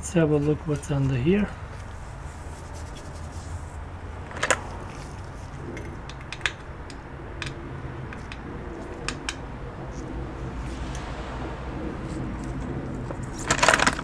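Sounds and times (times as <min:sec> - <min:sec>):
steady low hum: 0:00.0 - 0:14.0
metallic clicks and taps: 0:05.7 - 0:09.4.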